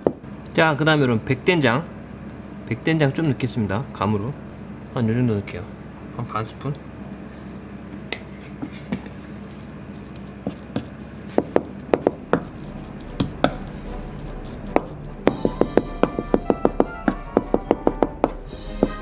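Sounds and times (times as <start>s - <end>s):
knife chopping on cutting board: 10.2s - 19.0s.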